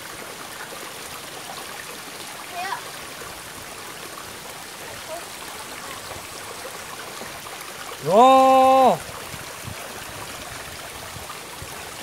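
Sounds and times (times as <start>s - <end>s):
rocky stream rushing: 0.0s - 12.0s
person exclaiming: 8.0s - 9.0s.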